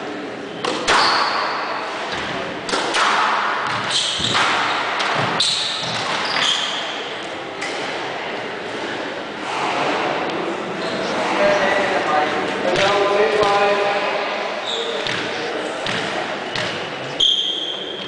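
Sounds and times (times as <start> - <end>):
shoes squeaking on wooden floor: 3.9 - 6.9.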